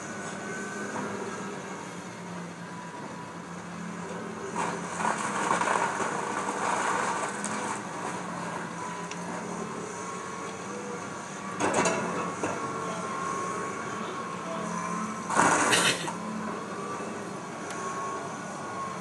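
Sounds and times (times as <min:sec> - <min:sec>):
excavator engine running: 0:00.0 - 0:19.0.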